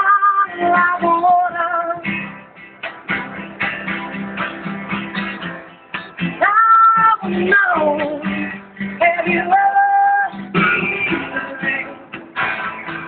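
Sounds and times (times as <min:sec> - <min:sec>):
woman singing: 0:00.0 - 0:02.1, 0:06.4 - 0:12.2
acoustic guitar strumming: 0:00.0 - 0:13.0.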